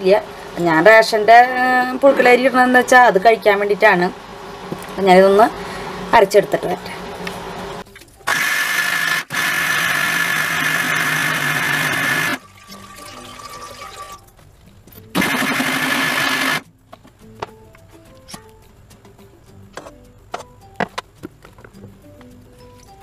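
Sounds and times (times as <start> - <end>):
motor whine running down: 1.9 - 12.5, 15.1 - 16.6
mixer grinder running: 2.8 - 12.4, 15.1 - 16.6.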